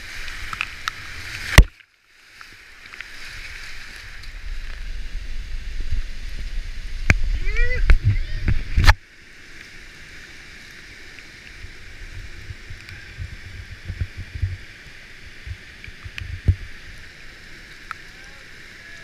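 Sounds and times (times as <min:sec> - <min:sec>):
rushing whitewater: 0:00.0 - 0:19.0
low thumps on microphone: 0:04.6 - 0:09.0, 0:12.1 - 0:16.8.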